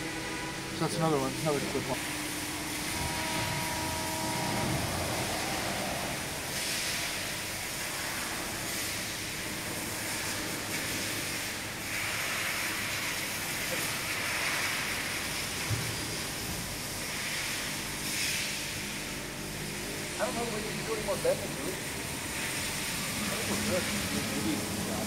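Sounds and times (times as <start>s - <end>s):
steady tones: 0.0s - 7.9s.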